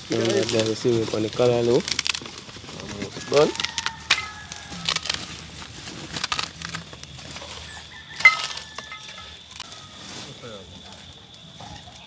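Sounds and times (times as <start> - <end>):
utensils and pots clinking: 8.2 - 9.4.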